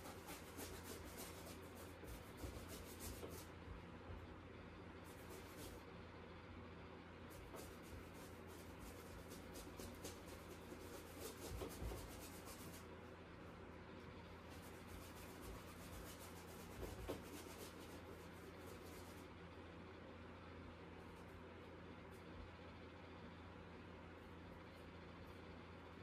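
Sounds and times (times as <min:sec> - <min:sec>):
paintbrush scrubbing canvas: 0:00.0 - 0:03.8, 0:05.0 - 0:05.9, 0:07.3 - 0:13.0, 0:14.0 - 0:19.4
low steady hum: 0:00.0 - 0:26.0.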